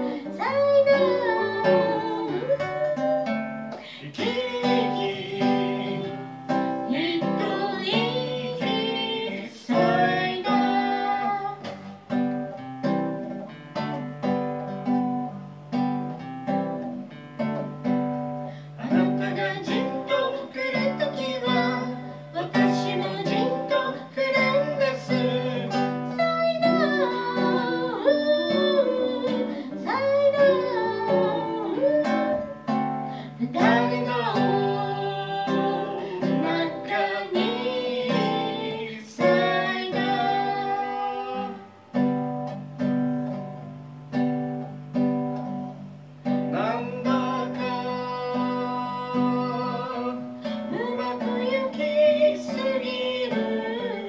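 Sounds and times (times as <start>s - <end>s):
man singing: 0.0s - 11.6s, 18.8s - 32.5s, 33.4s - 41.7s, 46.5s - 54.0s
strummed acoustic guitar: 0.0s - 54.0s.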